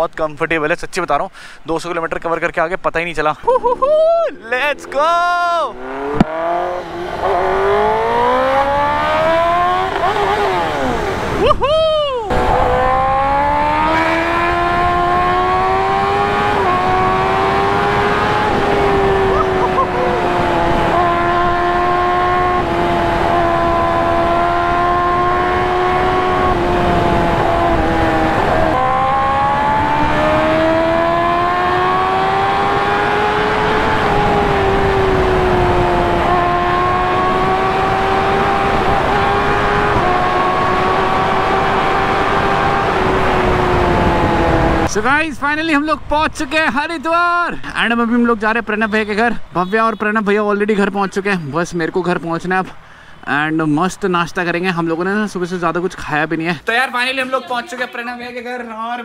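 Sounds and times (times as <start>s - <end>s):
motorcycle engine revving: 4.7s - 11.4s, 12.3s - 45.1s
wind rush: 33.4s - 46.6s.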